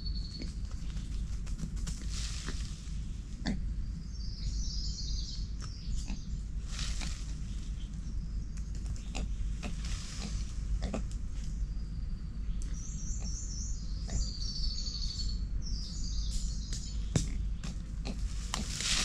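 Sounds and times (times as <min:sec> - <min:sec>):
low steady rumble: 0:00.0 - 0:19.0.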